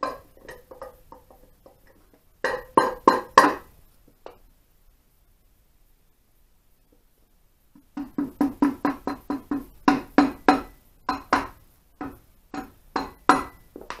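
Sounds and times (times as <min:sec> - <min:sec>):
mallet knocking on metal: 0:08.0 - 0:13.6.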